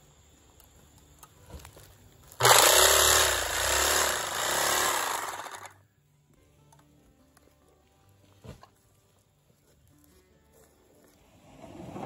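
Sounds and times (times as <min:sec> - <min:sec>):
electric sewing machine stitching: 0:02.4 - 0:05.7.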